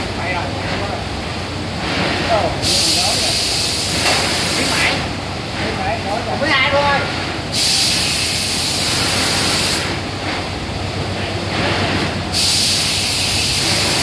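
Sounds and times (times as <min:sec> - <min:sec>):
machinery humming: 0:00.0 - 0:14.0
compressed air hissing: 0:01.8 - 0:05.0, 0:07.5 - 0:10.0, 0:11.7 - 0:14.0.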